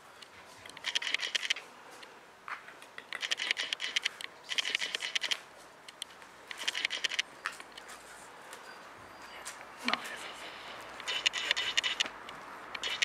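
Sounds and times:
puppy claws scrabbling on paving: 2.5 - 8.6, 9.4 - 13.0.

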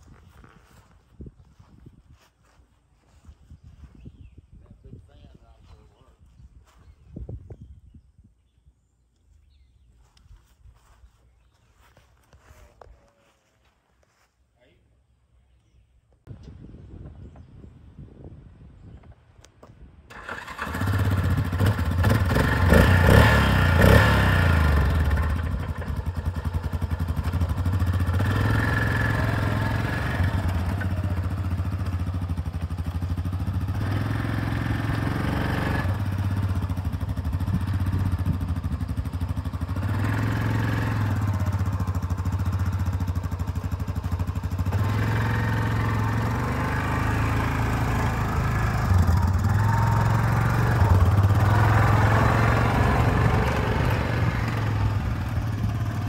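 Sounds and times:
quad bike engine revving: 20.1 - 56.0.

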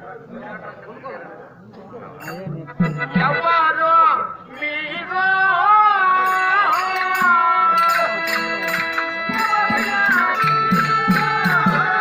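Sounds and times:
sustained instrumental tones: 2.2 - 5.2, 6.2 - 12.0
person singing: 4.5 - 12.0.

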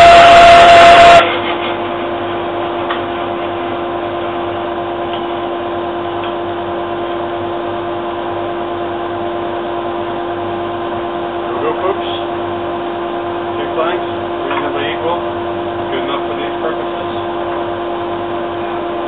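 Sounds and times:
bandsaw and dust extractor humming: 0.0 - 1.4.

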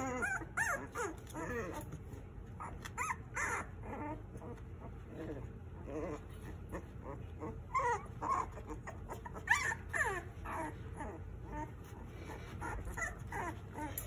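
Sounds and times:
puppies whimpering and whining: 0.0 - 14.0.

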